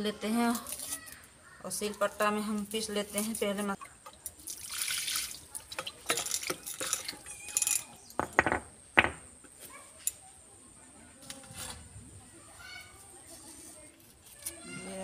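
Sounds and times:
knocks against stone slab: 8.2s - 9.2s.

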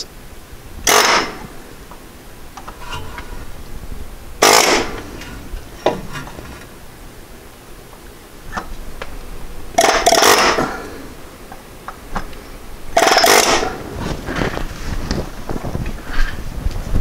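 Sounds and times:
pneumatic air chisel hammering: 0.8s - 1.5s, 4.4s - 6.0s, 9.8s - 11.0s, 13.0s - 13.9s.

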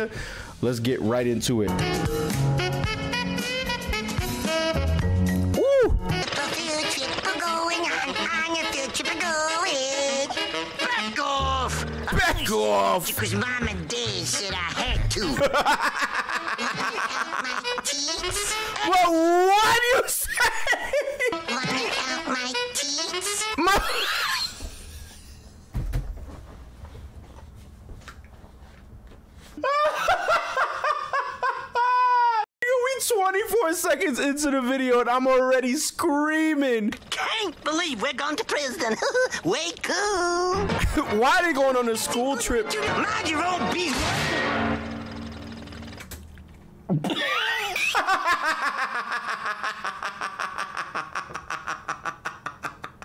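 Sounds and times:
man laughing hard: 14.9s - 18.0s, 19.2s - 21.5s, 29.6s - 32.5s, 38.8s - 39.4s, 47.1s - 53.0s.

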